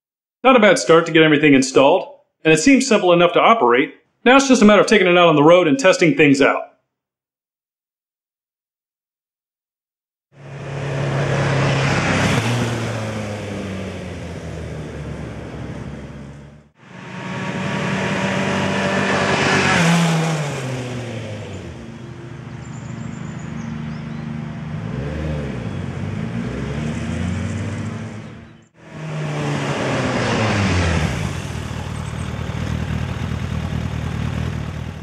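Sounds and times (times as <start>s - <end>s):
motorcycle engine passing: 10.4s - 35.0s.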